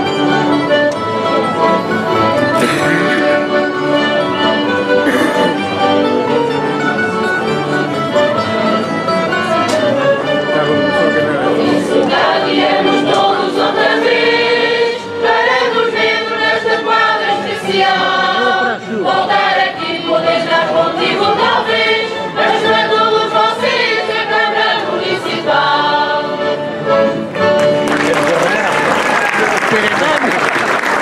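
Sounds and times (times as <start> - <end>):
mixed choir singing a carol: 9.2 - 27.2.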